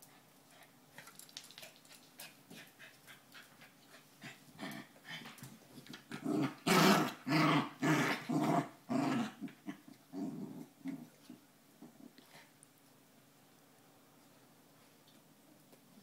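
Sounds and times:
small dogs growling: 5.9s - 12.5s.

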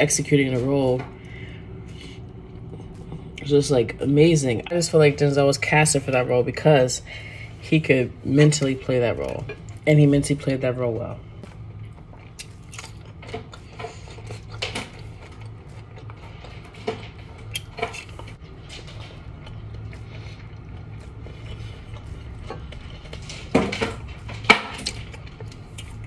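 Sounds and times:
low steady hum: 0.0s - 26.0s
crunching and chewing: 11.4s - 26.0s.

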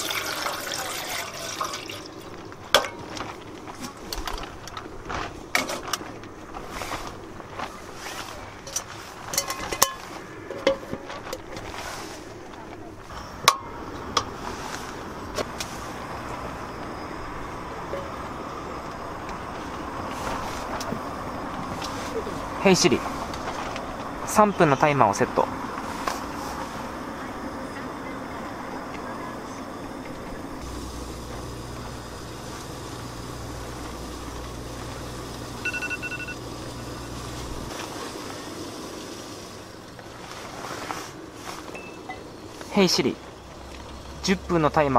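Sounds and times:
gas burner running: 0.0s - 44.9s
phone timer beeping: 35.6s - 36.4s.

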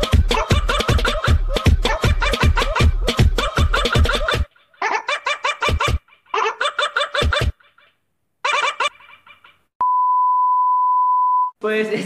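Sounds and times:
steady beep: 9.8s - 11.5s.

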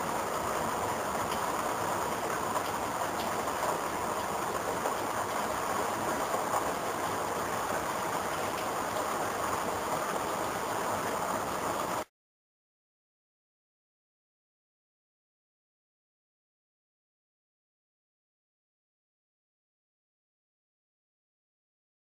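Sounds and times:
steady rain pouring: 0.0s - 12.1s.

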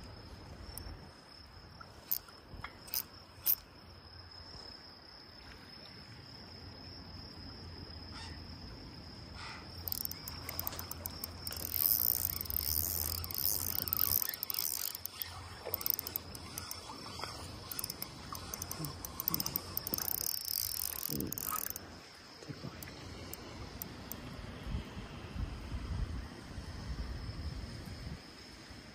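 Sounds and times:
crickets trilling: 0.0s - 28.9s
fishing reel clicking: 0.6s - 0.9s, 2.0s - 3.6s, 9.8s - 21.9s.

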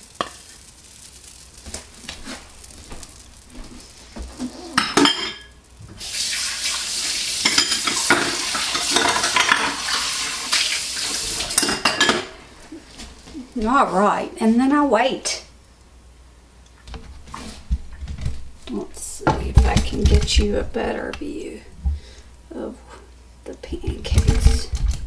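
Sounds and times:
batter sizzling on a griddle: 0.0s - 13.3s.

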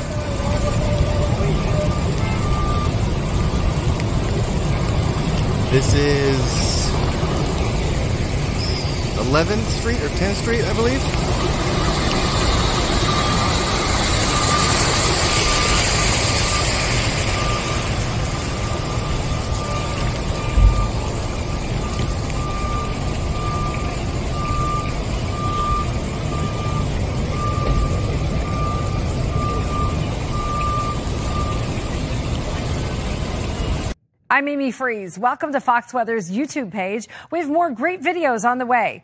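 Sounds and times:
traffic rushing: 0.0s - 34.0s
vehicle reversing alarm beeping: 0.0s - 34.0s
water rushing: 0.0s - 34.0s.

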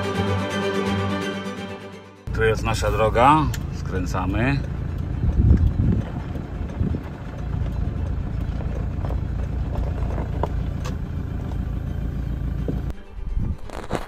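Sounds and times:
engine and tyre rumble: 2.3s - 14.0s
stones knocking under tyres: 4.6s - 12.9s.

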